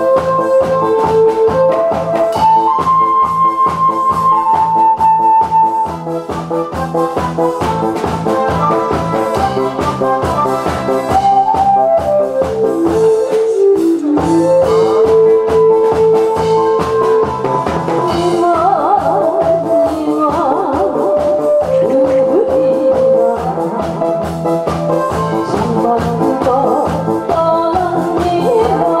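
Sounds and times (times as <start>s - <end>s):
brass-like melody: 0.0s - 18.7s
drum beat: 0.0s - 29.0s.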